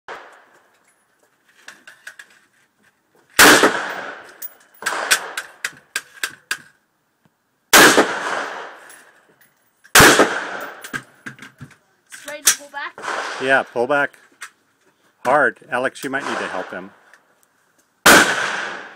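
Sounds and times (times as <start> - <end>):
echoing gunshots: 3.4 - 5.4, 7.7 - 8.8, 10.0 - 10.8, 13.0 - 13.6, 16.2 - 17.0, 18.0 - 18.9.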